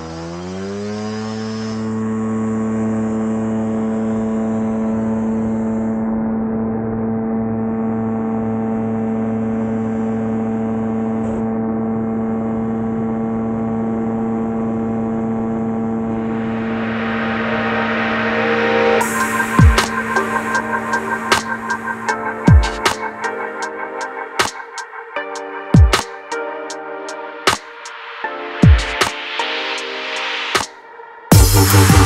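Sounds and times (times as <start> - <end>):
microlight engine drone: 0.0 - 25.9, 31.3 - 32.0
bright hiss: 19.0 - 22.1.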